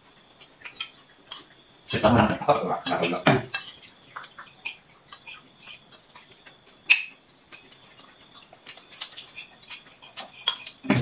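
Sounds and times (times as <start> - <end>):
spoons clinking on plates: 0.4 - 11.0.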